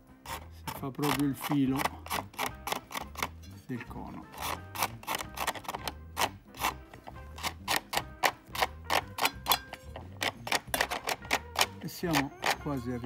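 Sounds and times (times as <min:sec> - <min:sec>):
rapid scraping on paper cone: 0:00.2 - 0:03.3, 0:04.3 - 0:09.3.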